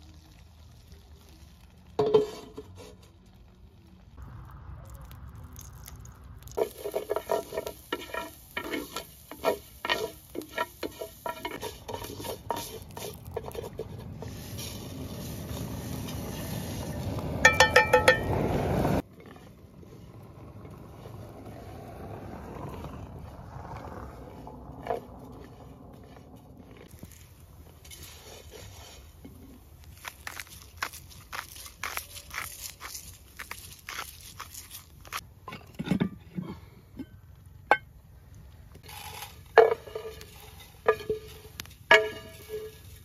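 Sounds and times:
grains sizzling: 0.0s - 35.2s, 38.8s - 43.0s
wooden spoon scraping a pan: 2.0s - 3.1s, 6.6s - 17.0s, 19.0s - 21.6s, 23.2s - 35.2s, 38.8s - 43.0s.

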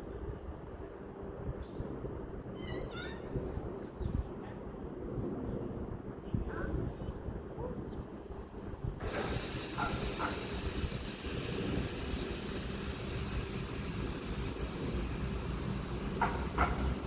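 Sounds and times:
short high squeaks: 2.6s - 3.3s
freight train rumbling past: 8.5s - 17.0s
wide hiss: 9.0s - 17.0s.

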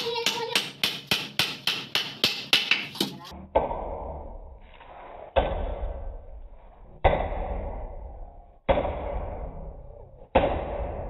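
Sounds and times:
hammer striking nail into wood: 0.2s - 3.1s.

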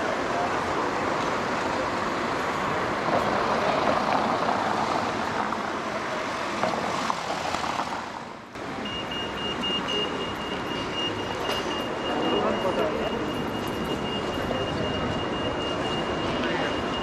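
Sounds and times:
cars driving past: 0.0s - 17.0s
crossing signal beeping: 8.6s - 17.0s.

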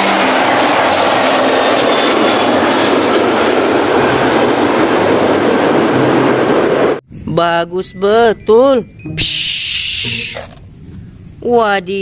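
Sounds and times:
jet engines roaring: 0.0s - 7.2s.

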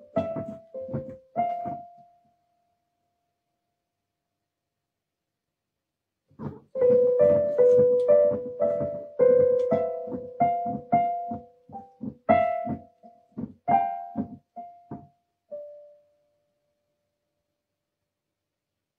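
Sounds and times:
piano keyboard single notes: 0.0s - 2.3s, 6.7s - 16.1s.

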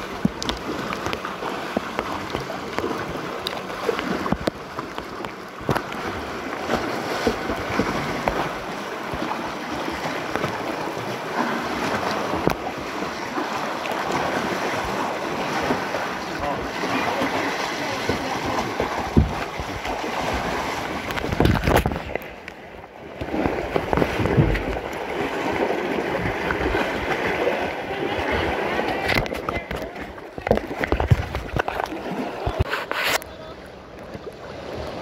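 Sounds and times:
water splashing and lapping: 0.0s - 35.0s
wind buffeting microphone: 18.2s - 22.2s
sharp knocks: 19.1s - 19.5s.

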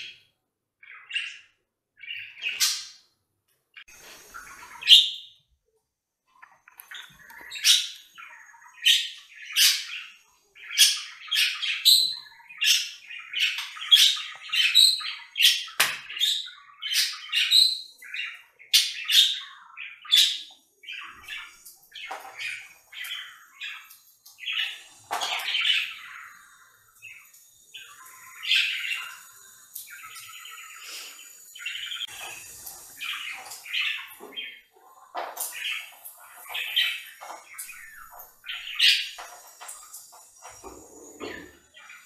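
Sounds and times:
budgerigars chirping: 0.8s - 3.0s, 4.0s - 5.4s, 6.4s - 42.0s.

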